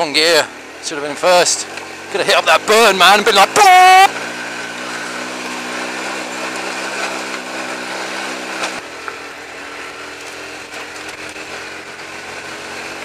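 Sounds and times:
motorcycle engine buzzing: 0.0s - 13.0s.

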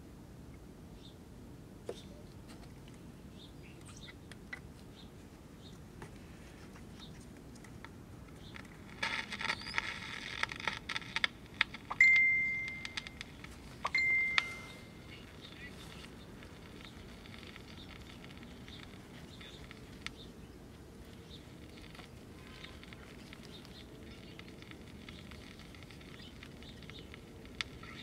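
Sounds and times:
radio clicks: 8.4s - 20.3s
radio crackling static: 8.6s - 28.0s
high steady whistle: 12.0s - 13.2s, 13.9s - 15.0s.

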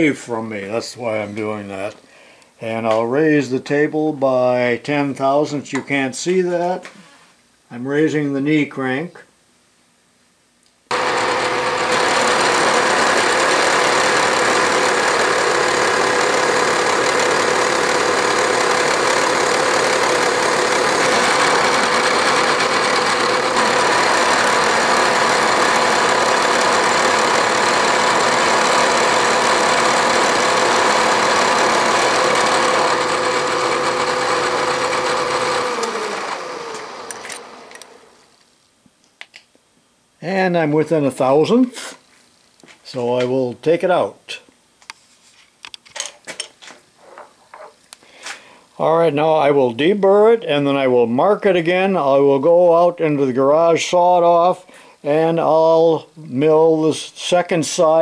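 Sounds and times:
metal cutting noise: 10.9s - 38.2s
milling machine spindle whine: 10.9s - 38.2s
spindle winding down: 10.9s - 38.3s.

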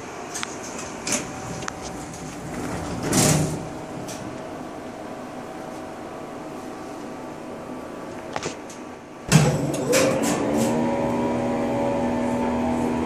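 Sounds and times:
elevator machinery humming: 0.0s - 8.1s.

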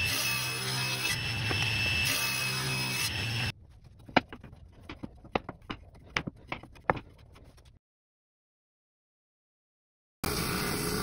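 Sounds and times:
table saw cutting wood: 0.0s - 3.5s
wood strips knocking: 4.0s - 7.6s.

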